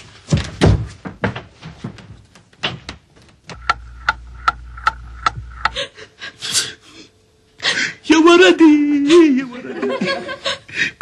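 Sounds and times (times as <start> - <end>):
irregular knocks and thuds: 0.3 - 5.8
clock ticking: 3.5 - 5.8
low hum: 3.5 - 6.3.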